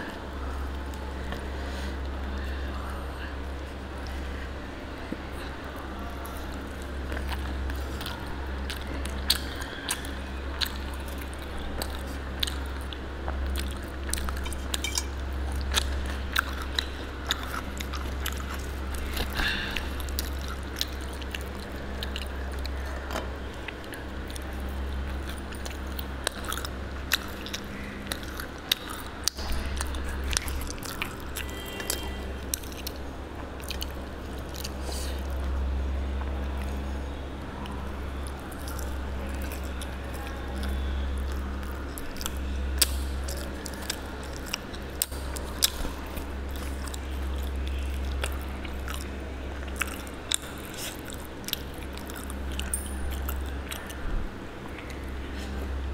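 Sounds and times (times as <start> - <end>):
steady low hum: 0.0 - 55.9
person chewing food: 5.1 - 37.0, 37.6 - 55.9
wet mouth clicks and smacks: 40.6 - 45.9.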